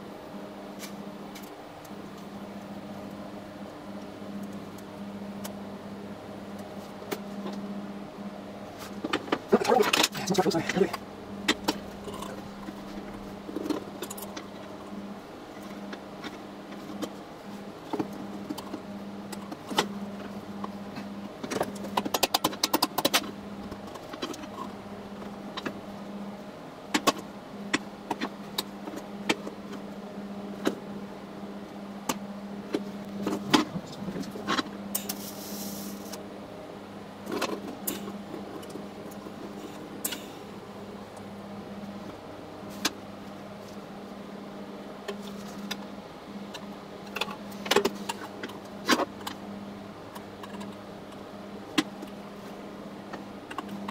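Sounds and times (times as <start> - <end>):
steady low hum: 0.0 - 53.9
short hiss: 35.1 - 36.1.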